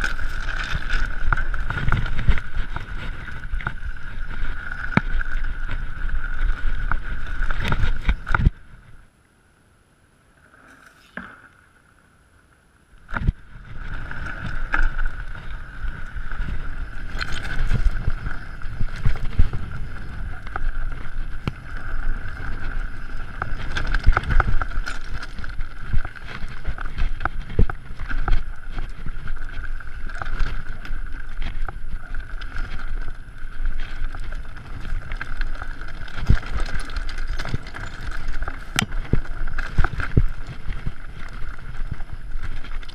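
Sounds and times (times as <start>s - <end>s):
bike rattling and knocking: 0.0s - 8.6s, 13.1s - 42.9s
wind on microphone: 0.0s - 9.1s, 13.0s - 42.9s
bike tyres on dirt trail: 0.0s - 9.2s, 10.2s - 42.9s.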